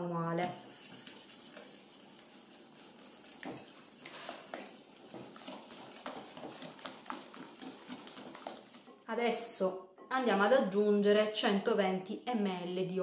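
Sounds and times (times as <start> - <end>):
whisk tapping against bowl: 0.4 - 8.9.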